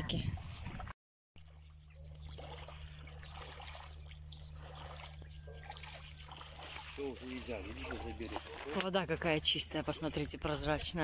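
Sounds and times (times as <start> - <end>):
shallow water trickling and lapping: 0.0 - 11.0
steady low hum: 1.4 - 11.0.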